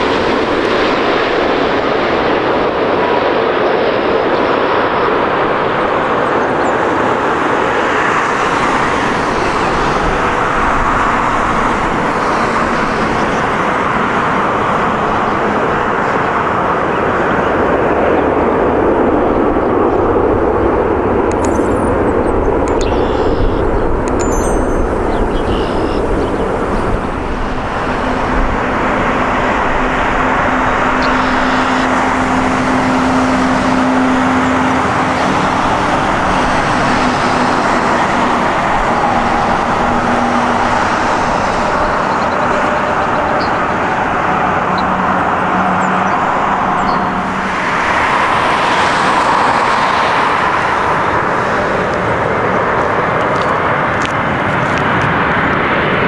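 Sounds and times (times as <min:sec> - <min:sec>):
jet engines roaring: 0:00.0 - 0:56.0
turbofan whine: 0:24.9 - 0:56.0.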